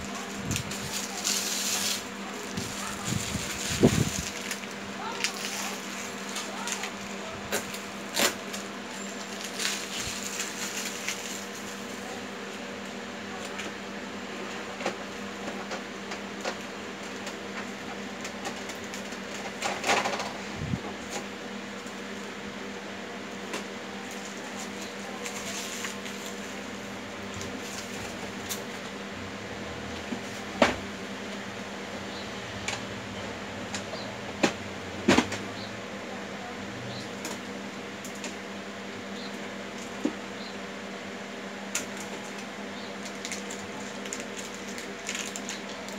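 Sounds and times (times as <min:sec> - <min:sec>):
plastic wrap rustling and crinkling: 0:00.0 - 0:12.2, 0:24.1 - 0:28.7, 0:41.9 - 0:45.9
steady low hum: 0:00.0 - 0:45.9.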